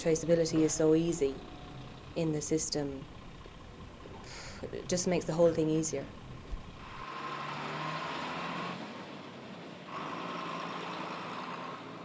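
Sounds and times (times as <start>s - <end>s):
steady high tone: 0.0s - 7.0s
truck engine pulling away: 0.0s - 12.0s.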